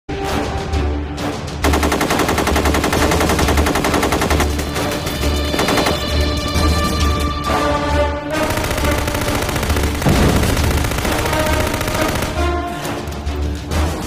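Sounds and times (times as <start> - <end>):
film score with deep pulses: 0.1 - 14.0
machine gun automatic fire: 1.6 - 6.3, 8.3 - 12.6.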